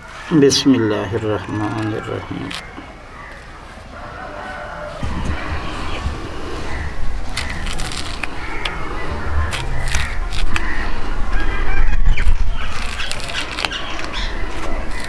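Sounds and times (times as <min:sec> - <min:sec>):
fowl calling: 0:00.0 - 0:15.0
low rumble: 0:05.0 - 0:15.0
peel tearing: 0:07.3 - 0:08.8, 0:09.5 - 0:10.7, 0:12.2 - 0:15.0.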